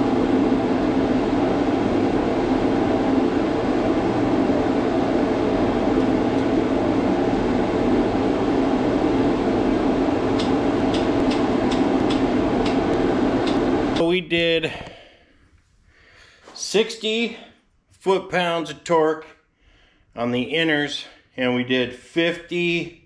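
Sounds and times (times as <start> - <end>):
loud fan-like whooshing: 0.0 - 14.0
sharp clicks: 10.4 - 14.1.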